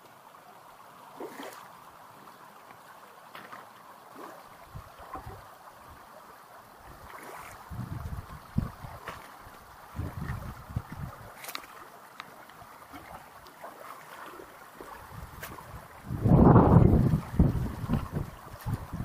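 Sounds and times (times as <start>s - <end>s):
stream trickling over stones: 0.0s - 19.0s
wind buffeting microphone: 7.6s - 9.2s, 9.9s - 11.4s, 15.0s - 19.0s.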